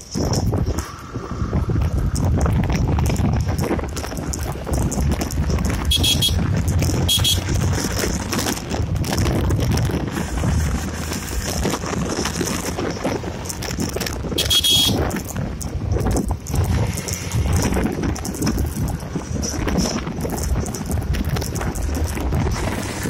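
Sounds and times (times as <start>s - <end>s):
motorcycle engine running: 0.0s - 23.0s
wind buffeting microphone: 0.0s - 23.0s.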